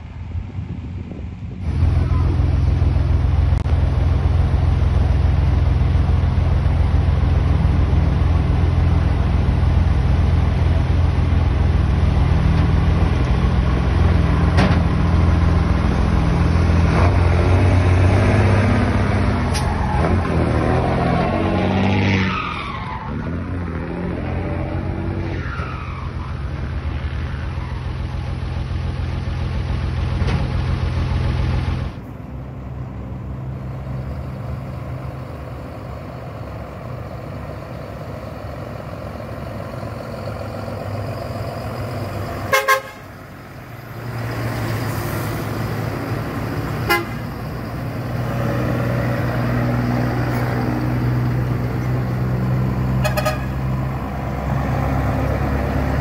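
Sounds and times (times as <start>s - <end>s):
diesel truck engines droning: 0.0s - 56.0s
truck horn toots: 42.5s - 43.2s, 46.8s - 47.4s, 53.0s - 53.7s.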